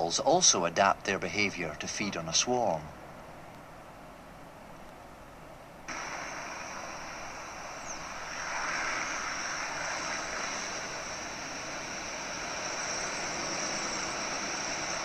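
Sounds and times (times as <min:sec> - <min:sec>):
steady rushing noise: 0:00.0 - 0:15.0.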